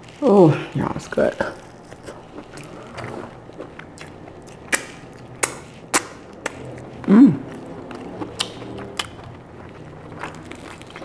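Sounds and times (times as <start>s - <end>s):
lobster shell clicking and snapping: 4.6s - 6.6s
person humming: 7.0s - 7.5s.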